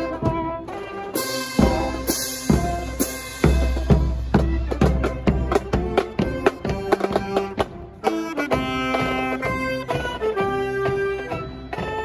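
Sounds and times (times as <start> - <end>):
drum and cymbal strikes: 1.2 - 9.6
saxophone melody: 5.9 - 12.0.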